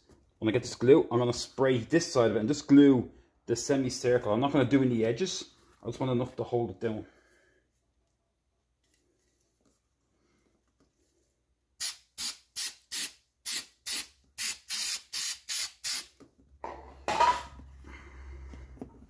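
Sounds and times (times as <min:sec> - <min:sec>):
aerosol can spraying hisses: 0:11.8 - 0:16.1.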